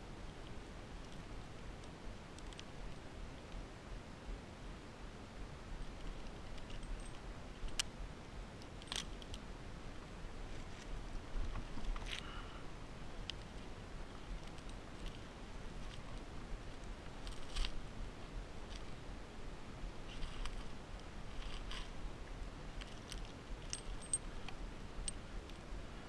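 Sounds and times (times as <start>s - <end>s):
faint steady hiss: 0.0s - 26.0s
metallic clicks of carabiners: 5.8s - 7.9s, 8.6s - 9.4s, 22.8s - 25.6s.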